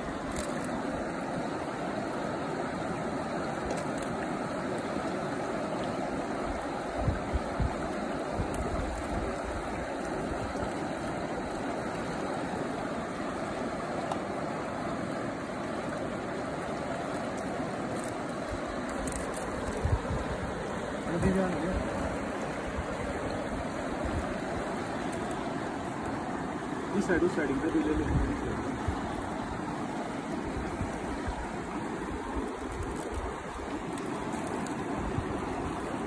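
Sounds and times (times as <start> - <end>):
river rushing over rocks: 0.0 - 36.0.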